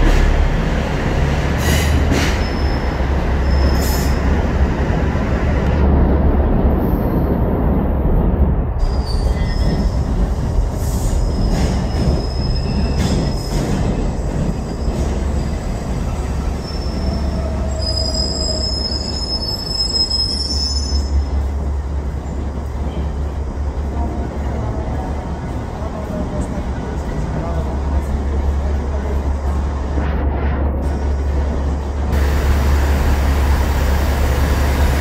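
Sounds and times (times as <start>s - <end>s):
train low rumble: 0.0s - 35.0s
high wheel squeal: 2.3s - 4.2s, 11.2s - 13.7s, 16.5s - 21.3s.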